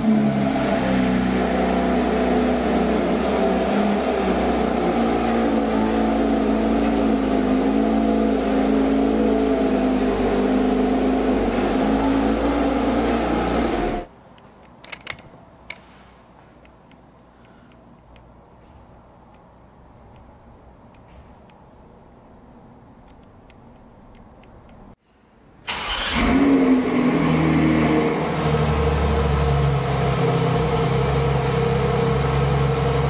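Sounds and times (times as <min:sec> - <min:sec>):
car engine idling: 0:00.0 - 0:14.1, 0:25.7 - 0:33.0.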